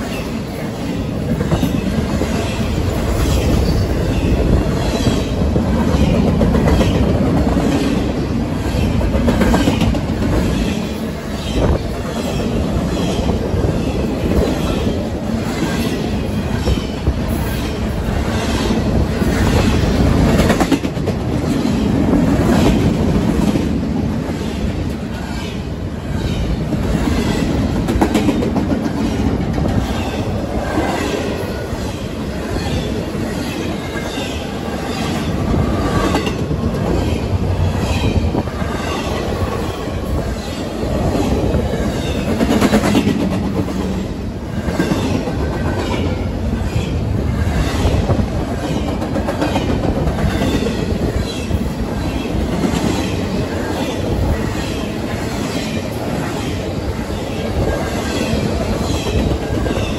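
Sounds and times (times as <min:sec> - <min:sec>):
train rumble: 0:00.0 - 0:59.9
train wheels clicking over rail joints: 0:26.6 - 0:31.0.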